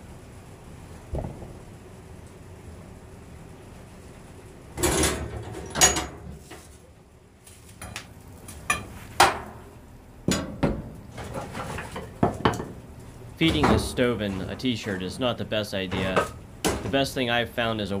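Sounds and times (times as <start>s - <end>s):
low rumble of fire: 0.0s - 18.0s
poker clanking and scraping coals: 11.1s - 12.2s, 13.5s - 15.4s.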